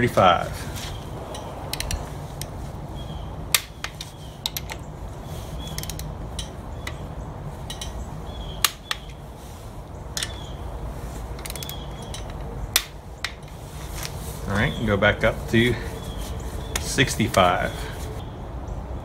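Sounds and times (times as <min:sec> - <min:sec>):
sharp metallic clicks: 0:01.3 - 0:02.6, 0:05.6 - 0:07.1, 0:08.6 - 0:09.2, 0:11.3 - 0:13.6
torque wrench ratcheting: 0:05.7 - 0:06.6.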